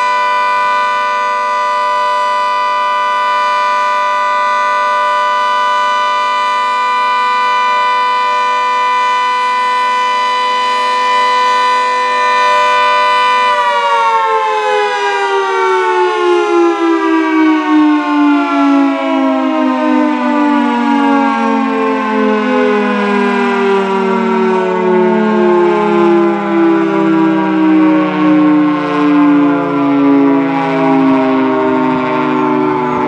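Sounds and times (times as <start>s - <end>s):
two-tone warning siren winding down: 0.0s - 33.0s.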